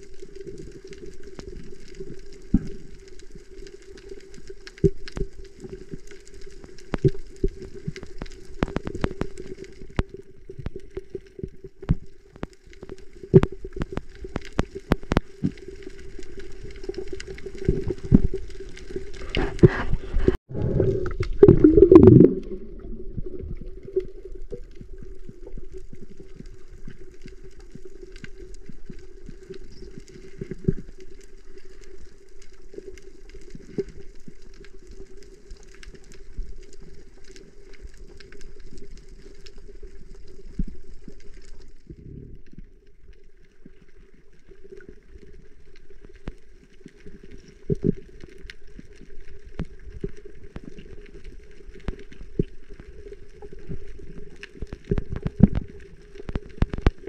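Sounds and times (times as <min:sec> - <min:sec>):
muffled underwater noise: 0:17.6 - 0:24.9
underwater clicks and knocks: 0:19.2 - 0:24.2, 0:54.5 - 0:57.0.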